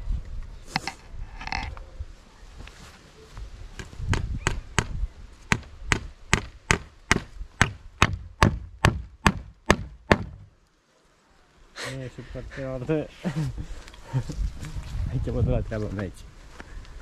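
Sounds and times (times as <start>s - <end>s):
tool striking sharp blows: 4.1s - 10.5s.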